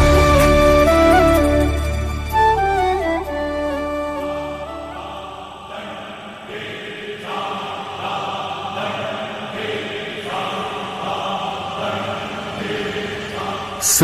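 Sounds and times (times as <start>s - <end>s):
devotional chanting voices: 4.6s - 14.0s.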